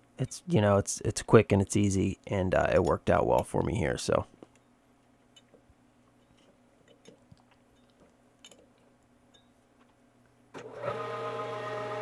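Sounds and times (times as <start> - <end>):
metal lathe humming: 10.6 - 12.0.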